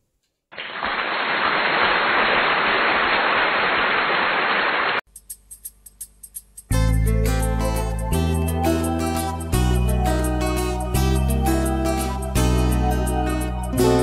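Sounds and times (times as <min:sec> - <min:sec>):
steady rain-like hiss: 0:00.6 - 0:05.0.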